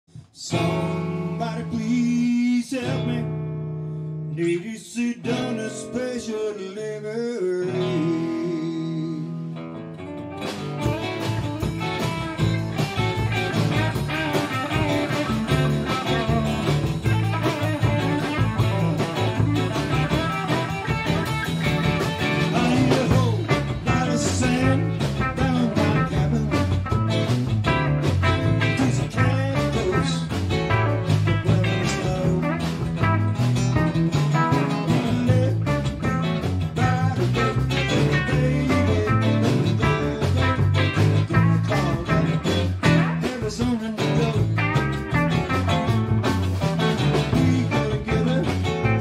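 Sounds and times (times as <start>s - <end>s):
blues-rock band playing: 0.3s - 4.4s, 7.6s - 49.0s.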